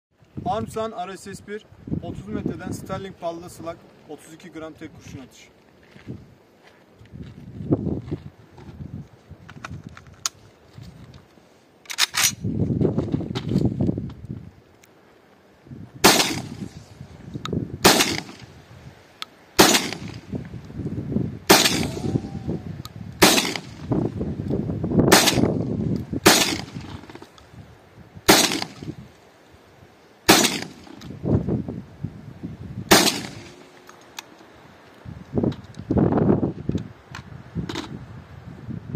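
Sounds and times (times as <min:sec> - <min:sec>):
shotgun shots: 0:16.0 - 0:16.8, 0:17.8 - 0:18.5, 0:19.6 - 0:20.3, 0:21.5 - 0:22.2, 0:23.2 - 0:23.8, 0:25.1 - 0:25.6, 0:26.2 - 0:27.0, 0:28.3 - 0:28.9, 0:30.3 - 0:31.0, 0:32.9 - 0:33.6.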